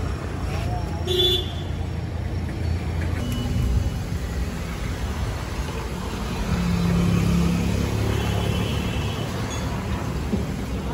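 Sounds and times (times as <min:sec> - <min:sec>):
street rumble: 0:00.0 - 0:10.9.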